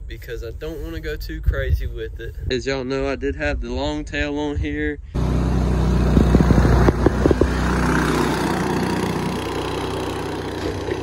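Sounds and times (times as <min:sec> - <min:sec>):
boat motor running at speed: 0:05.2 - 0:11.0.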